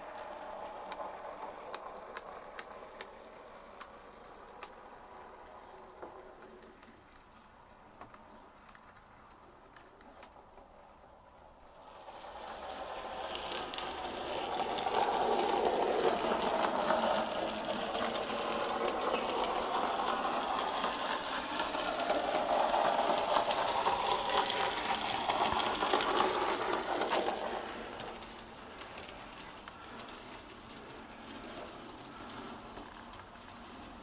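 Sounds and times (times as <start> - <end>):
wheels clicking over rail joints: 0.0 - 34.0
small electric motor whirring: 12.4 - 29.1.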